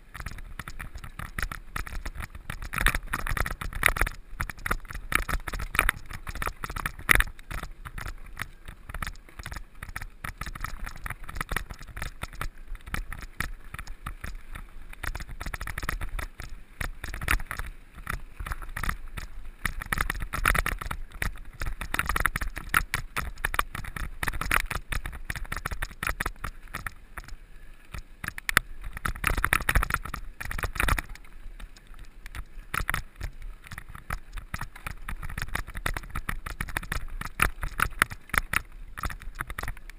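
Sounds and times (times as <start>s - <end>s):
bike tyres rattling over stones: 0.0s - 39.9s
wind rumble on microphone: 0.0s - 39.9s.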